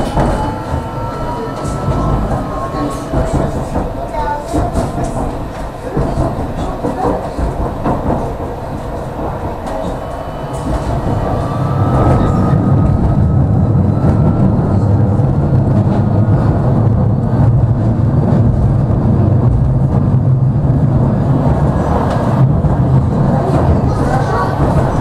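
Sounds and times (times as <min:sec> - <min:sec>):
tram wheels rumbling on rails: 0:00.0 - 0:25.0
faint rising whine: 0:09.6 - 0:17.3.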